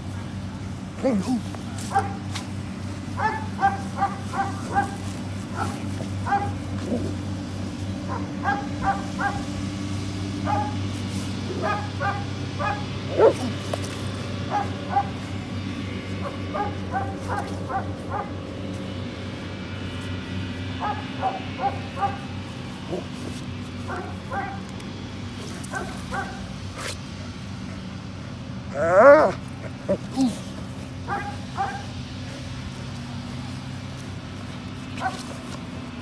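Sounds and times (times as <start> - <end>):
low engine hum: 0.0 - 36.0
dog whining and yipping: 12.6 - 13.5, 28.7 - 29.4.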